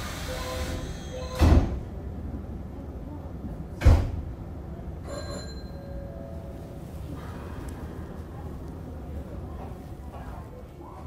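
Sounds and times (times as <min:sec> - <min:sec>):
train doors closing with thuds: 0:00.0 - 0:02.0, 0:03.7 - 0:05.6
faint high chime: 0:05.0 - 0:06.6
steady low hum: 0:06.0 - 0:11.0.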